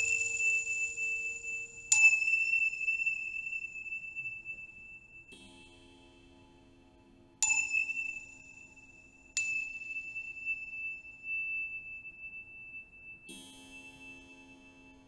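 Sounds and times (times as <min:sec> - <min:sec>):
high ringing tone: 0:00.0 - 0:05.3
small metal bell strikes: 0:00.0 - 0:05.5, 0:07.4 - 0:15.0.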